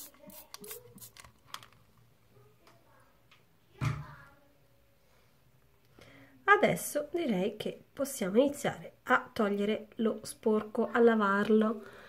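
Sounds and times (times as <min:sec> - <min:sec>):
spray bottle spritzing: 0:00.0 - 0:01.3.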